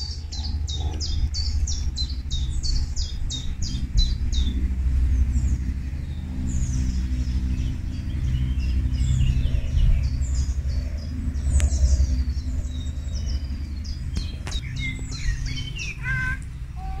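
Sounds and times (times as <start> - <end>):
low rumble with hum: 0.0 - 17.0
songbirds chirping and trilling: 0.0 - 17.0
lower falling bird calls: 5.2 - 17.0.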